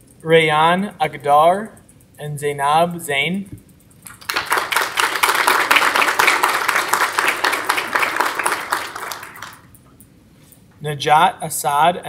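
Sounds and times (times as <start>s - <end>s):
audience applauding: 4.1s - 9.7s.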